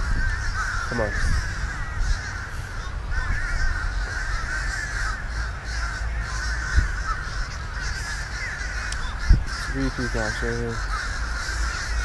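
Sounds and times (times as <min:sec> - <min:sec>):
many birds chattering: 0:00.0 - 0:12.0
steady low rumble: 0:00.0 - 0:12.0.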